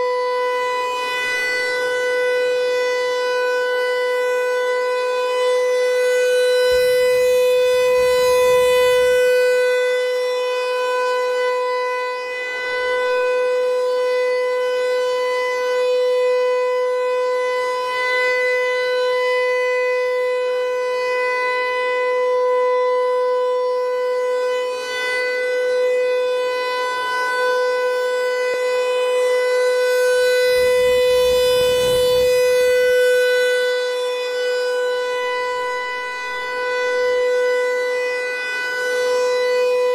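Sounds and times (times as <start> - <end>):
electronic siren steady tone: 0.0 - 39.9
low rumbles: 30.6 - 32.5.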